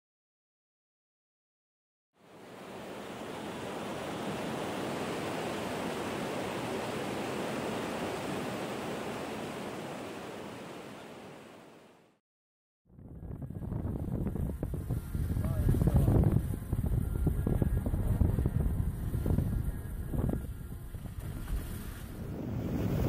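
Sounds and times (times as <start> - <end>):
river whitewater rushing: 2.2 - 12.1.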